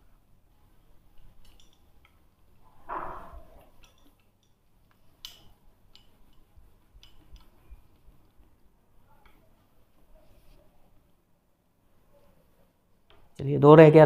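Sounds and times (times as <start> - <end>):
cloth wiping whiteboard: 9.7 - 10.8.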